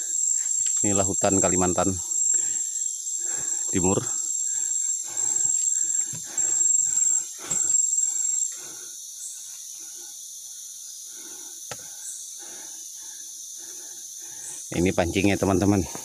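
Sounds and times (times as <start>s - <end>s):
insect high shrill: 0.0s - 15.9s.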